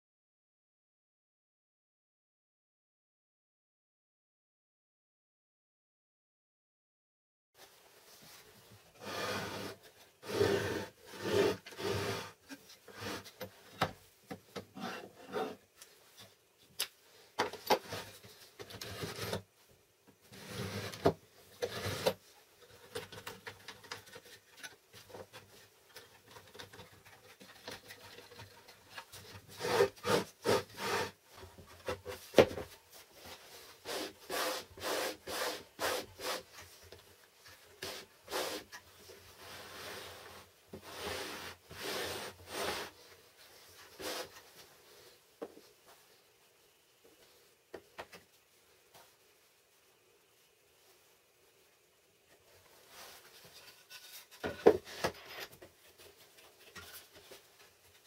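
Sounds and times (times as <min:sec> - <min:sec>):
wooden jig sliding back and forth: 0:09.0 - 0:13.5, 0:14.7 - 0:15.7, 0:20.3 - 0:22.2, 0:29.5 - 0:31.2.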